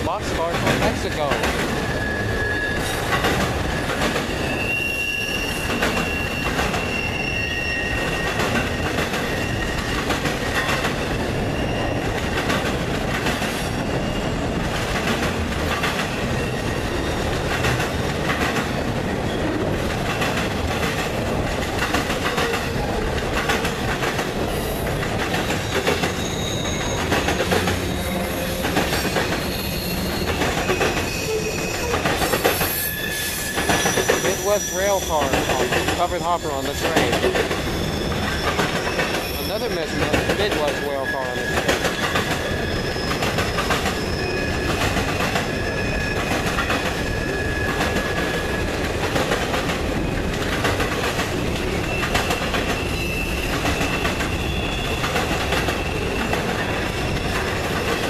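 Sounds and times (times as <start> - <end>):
train wheels rumbling on rails: 0.0 - 58.0
high wheel squeal: 1.8 - 12.3, 25.6 - 48.7, 51.8 - 58.0.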